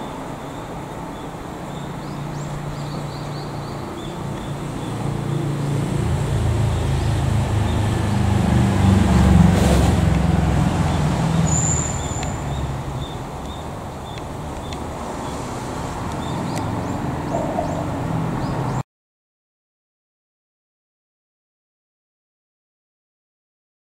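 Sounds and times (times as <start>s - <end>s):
vehicle engine passing by: 1.7s - 18.8s
brief high squeal: 11.4s - 12.4s.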